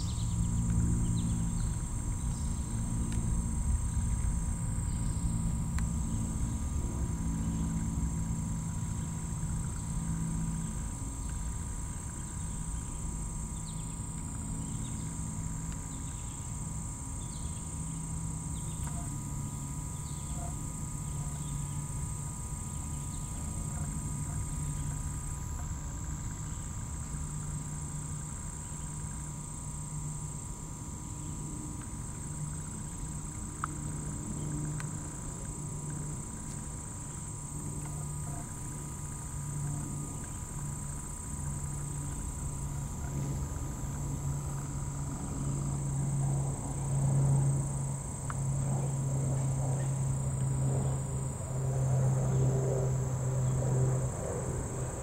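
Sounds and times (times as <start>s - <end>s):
insects droning: 0.0s - 55.0s
low background rumble: 0.0s - 55.0s.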